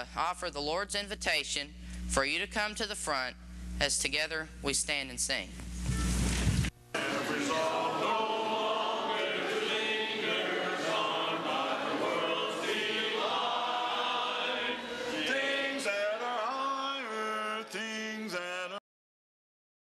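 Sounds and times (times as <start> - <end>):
congregation singing a hymn: 7.0 - 18.8.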